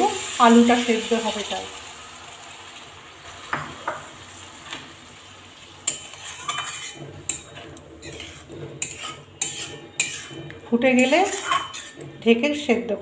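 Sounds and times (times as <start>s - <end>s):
curry sizzling in a pan: 0.0s - 12.6s
metal spatula scraping a pan: 5.8s - 12.8s.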